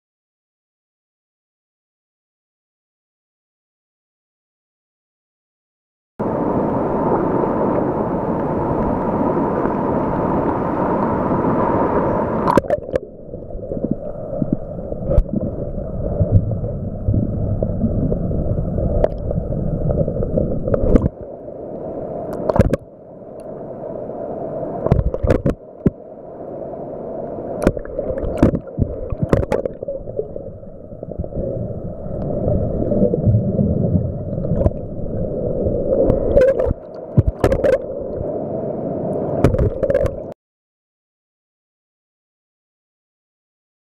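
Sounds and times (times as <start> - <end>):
muffled water sloshing underwater: 6.2 - 40.4.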